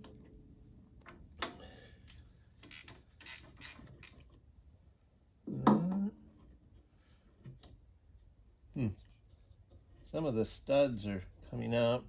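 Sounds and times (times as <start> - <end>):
ratchet wrench clicking: 2.6 - 4.2.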